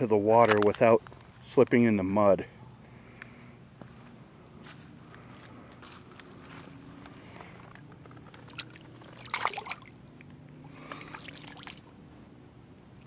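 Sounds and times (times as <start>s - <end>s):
water splashing: 8.3s - 12.0s.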